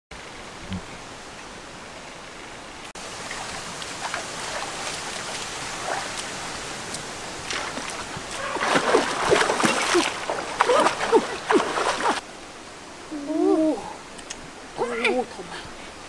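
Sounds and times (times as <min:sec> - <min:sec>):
stream running over rocks: 0:00.2 - 0:16.0
feet splashing through water: 0:03.0 - 0:12.2.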